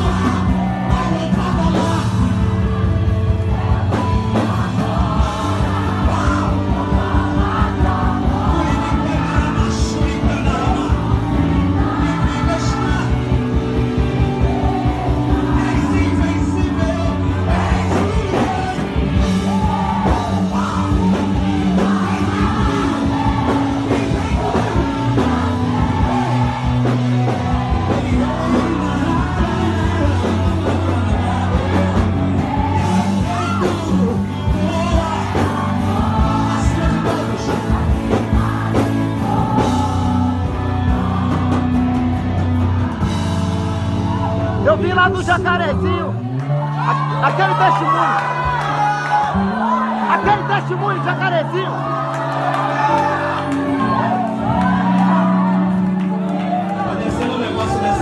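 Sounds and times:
man singing into microphone: 0.0s - 2.6s, 4.6s - 13.5s, 15.4s - 25.4s, 27.3s - 38.1s
bass and drum accompaniment: 0.0s - 58.0s.

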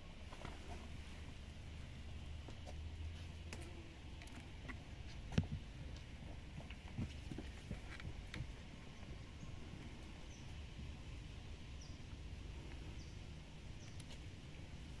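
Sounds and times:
bird chirping: 11.8s - 12.1s, 12.8s - 14.2s.

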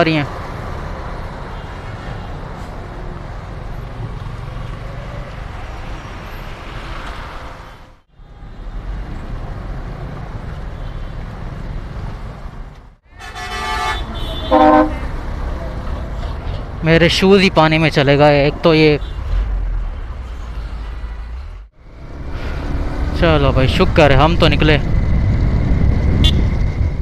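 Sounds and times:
traffic engines rumbling: 0.0s - 27.0s
vehicle horn toots: 13.1s - 15.1s.

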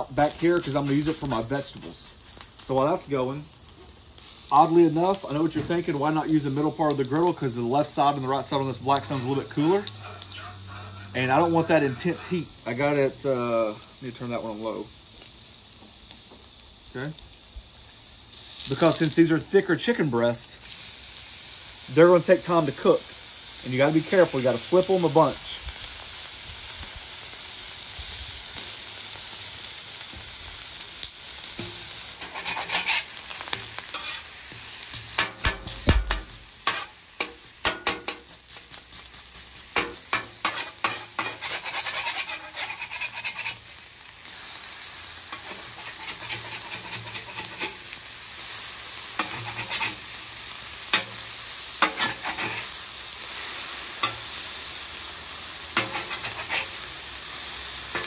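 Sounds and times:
meat sizzling on a griddle: 0.0s - 58.0s
metal spatulas scraping and tapping: 31.6s - 34.2s, 35.2s - 38.3s, 39.8s - 43.6s, 45.3s - 47.8s, 49.2s - 50.0s, 51.8s - 52.7s, 54.0s - 54.2s, 55.8s - 56.7s.

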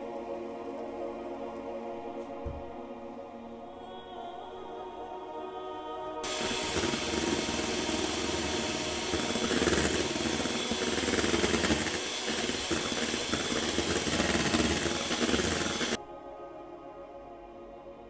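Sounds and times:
kitchen appliance motor whirring: 6.2s - 16.0s.

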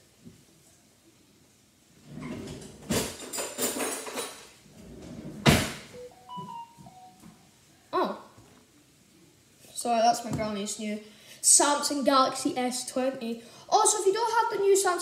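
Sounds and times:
objects knocking and rattling: 2.2s - 5.9s
phone notification tone: 6.0s - 7.2s.

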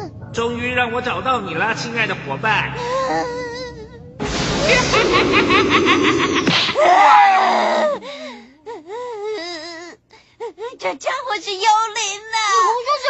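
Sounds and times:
voice crying out: 6.7s - 8.0s.

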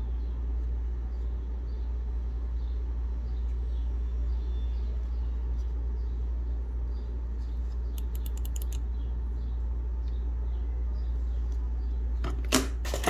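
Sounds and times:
steady low hum: 0.0s - 13.0s
mouse scroll wheel clicks: 8.0s - 8.8s.

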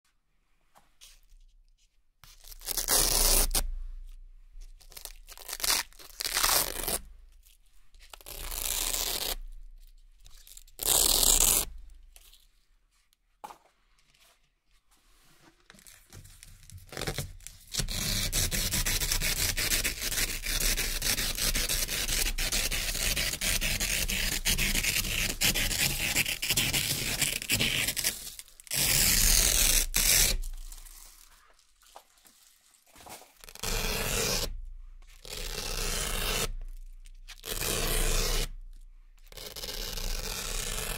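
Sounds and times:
velcro strips ripping apart: 2.3s - 3.7s, 4.8s - 7.1s, 8.1s - 9.5s, 10.3s - 12.4s, 16.9s - 31.9s, 33.4s - 34.6s, 35.2s - 38.6s, 39.3s - 40.9s.

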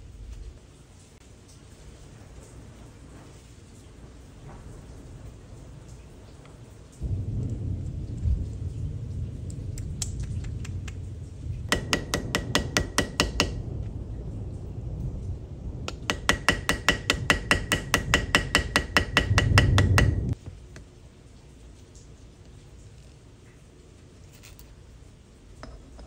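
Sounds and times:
low rumble: 7.0s - 16.2s, 17.2s - 20.4s.

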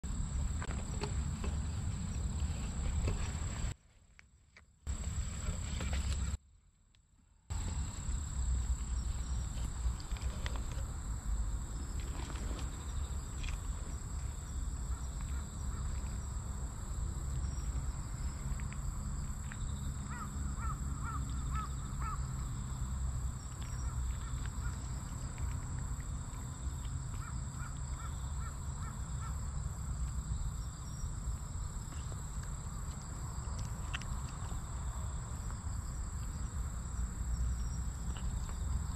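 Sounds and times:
bird calling: 20.1s - 22.5s.

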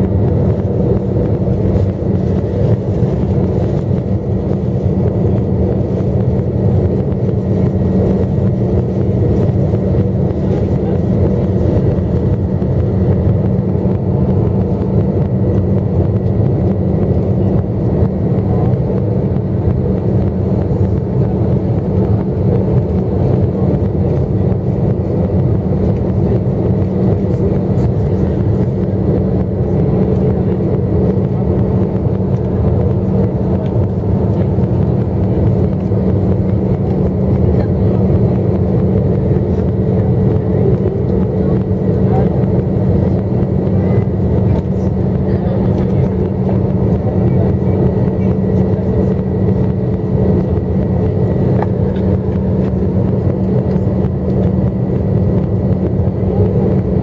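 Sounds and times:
jet engine drone: 0.0s - 57.0s
steady low hum: 0.0s - 57.0s.

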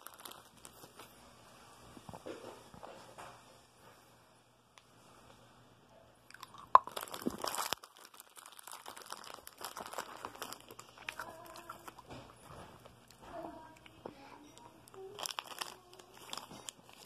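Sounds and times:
hard candy crunching: 0.0s - 1.0s, 6.3s - 13.2s, 14.9s - 17.0s
plastic wrapper crinkling: 0.0s - 1.1s, 6.3s - 13.9s, 14.5s - 17.0s.

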